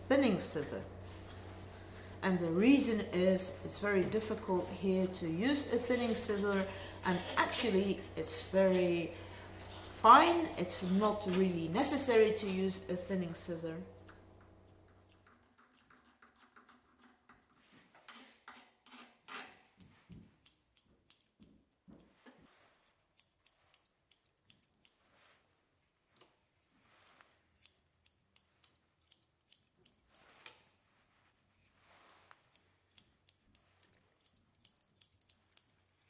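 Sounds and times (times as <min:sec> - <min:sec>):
grooming scissors snipping: 0:02.6 - 0:12.8, 0:14.0 - 0:17.5, 0:19.8 - 0:25.0, 0:27.0 - 0:30.7, 0:31.6 - 0:36.0.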